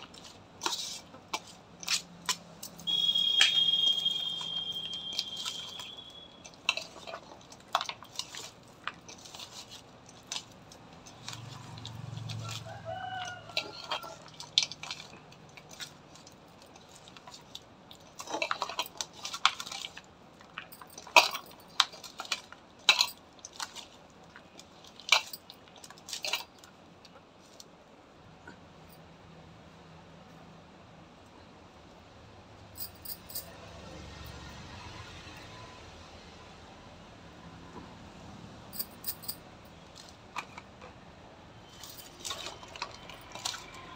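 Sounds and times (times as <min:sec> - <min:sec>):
bangles clinking against steel bowl: 0:01.8 - 0:12.6.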